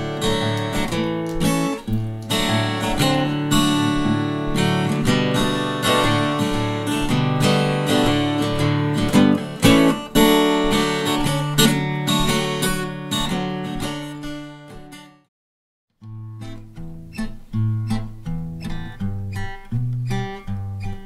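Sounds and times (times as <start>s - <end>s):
acoustic guitar playing: 0.0s - 15.3s, 16.0s - 21.0s.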